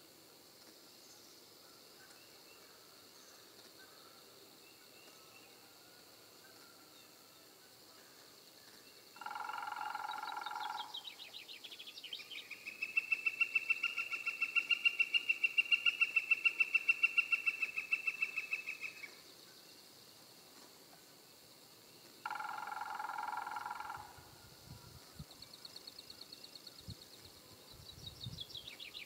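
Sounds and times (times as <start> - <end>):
woodpecker long call: 9.2 - 19.2, 22.2 - 24.6.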